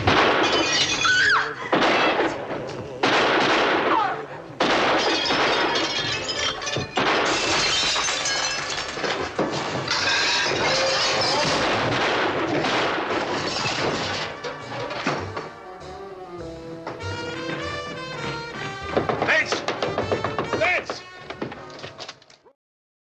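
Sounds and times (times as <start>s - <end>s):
glass shattering: 0.0s - 2.3s, 4.7s - 15.6s
crashing: 0.0s - 4.0s, 4.6s - 15.7s, 16.8s - 22.4s.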